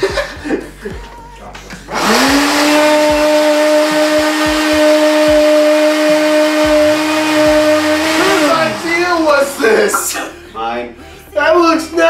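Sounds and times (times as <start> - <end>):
blender motor running: 1.9 - 10.0.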